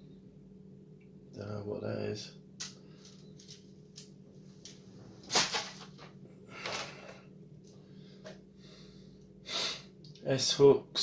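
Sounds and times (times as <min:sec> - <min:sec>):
plastic pieces clattering: 0:05.2 - 0:06.1.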